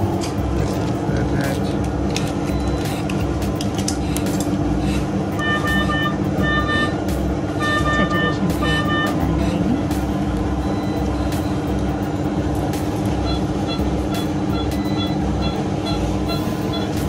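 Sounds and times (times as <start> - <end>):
equipment hum: 0.0 - 17.0
fast patient monitor beeps: 2.4 - 3.2, 5.4 - 7.0, 7.6 - 9.8, 10.6 - 11.8, 13.2 - 17.0.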